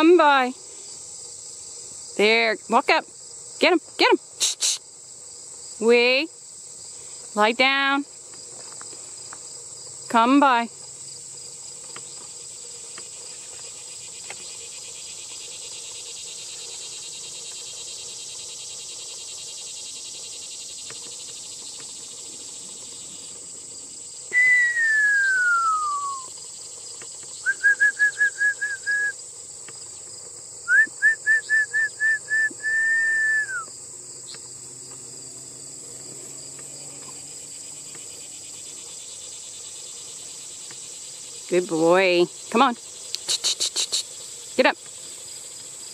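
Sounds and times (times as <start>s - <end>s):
insects chirping: 0.0s - 45.9s
shepherd's whistle: 24.3s - 26.3s, 27.4s - 29.2s, 30.7s - 33.7s.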